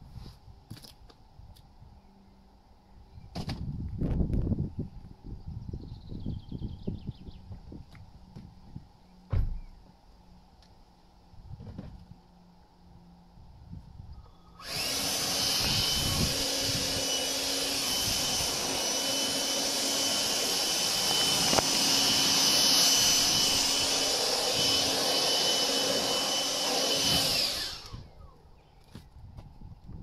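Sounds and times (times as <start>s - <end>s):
chainsaw cutting wood: 14.6s - 28.4s.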